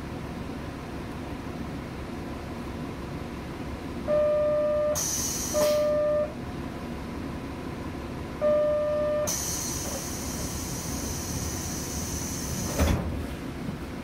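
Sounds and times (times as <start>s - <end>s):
train door buzzer: 4.1s - 6.4s, 8.4s - 12.9s
pneumatic door air hiss: 5.0s - 6.0s, 9.3s - 13.1s.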